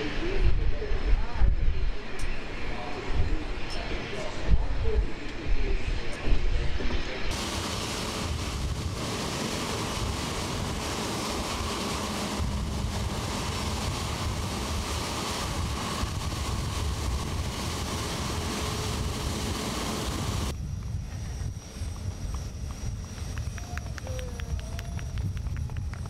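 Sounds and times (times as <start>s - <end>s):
jet engines at taxi power: 0.0s - 26.0s.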